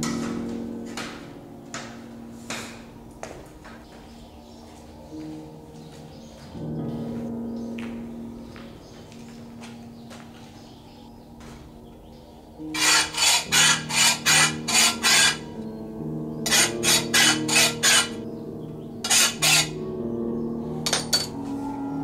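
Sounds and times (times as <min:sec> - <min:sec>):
low background music: 0:00.0 - 0:22.0
hand file rasping on pole: 0:12.8 - 0:15.4, 0:16.5 - 0:18.2, 0:19.1 - 0:19.8.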